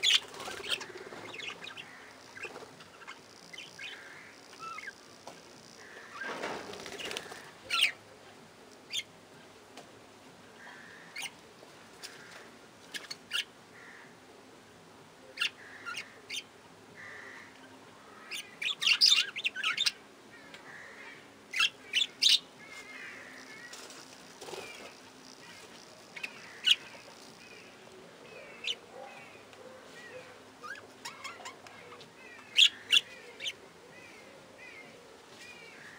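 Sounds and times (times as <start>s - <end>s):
budgerigars chirping and chattering: 0.0s - 5.0s, 6.9s - 8.0s, 18.3s - 20.0s, 21.5s - 27.8s, 28.4s - 29.4s, 30.0s - 33.6s
wings fluttering: 0.0s - 7.7s, 22.7s - 27.5s.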